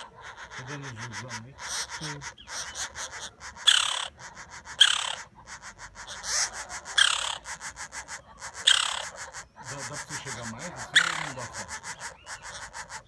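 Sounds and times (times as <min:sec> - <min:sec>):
harsh raspy bird calls: 0:00.0 - 0:13.0
woodpecker nestling chattering: 0:00.0 - 0:13.0.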